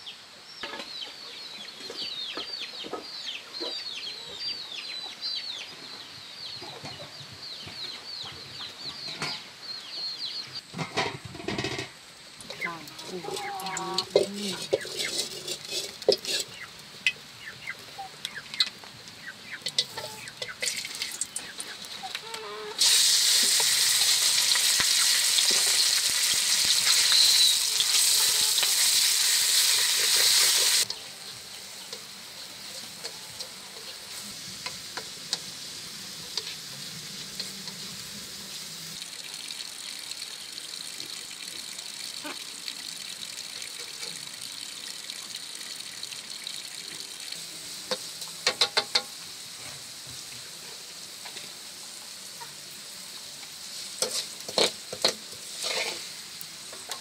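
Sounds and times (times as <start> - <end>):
food sizzling in a hot pan: 12.3 - 57.0.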